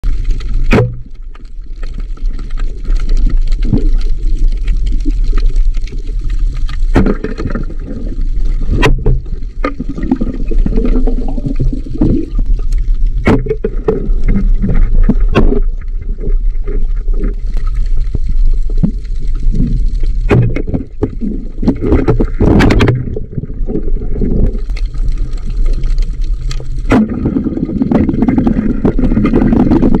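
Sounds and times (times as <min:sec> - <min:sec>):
underwater rumble of moving water: 0:00.0 - 0:30.0
sharp knocks and clicks: 0:20.3 - 0:20.8, 0:21.7 - 0:23.1.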